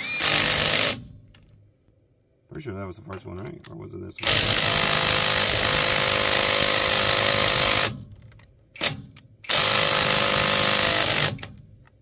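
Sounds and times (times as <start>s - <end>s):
impact wrench hammering lug nut: 4.2s - 8.1s, 8.8s - 11.6s.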